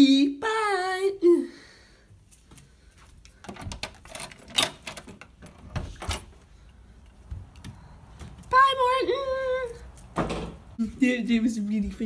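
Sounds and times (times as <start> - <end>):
handling clicks knocks and rustling: 3.2 - 6.5.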